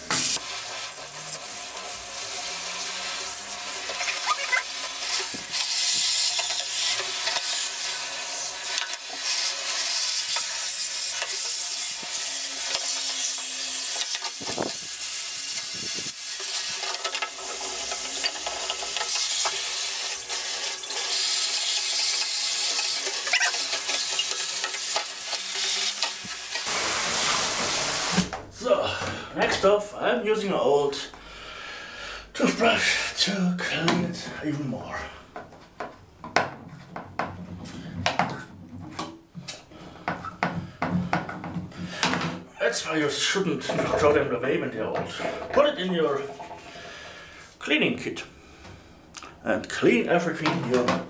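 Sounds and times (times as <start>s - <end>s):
tap water running into sink: 9.9s - 28.4s.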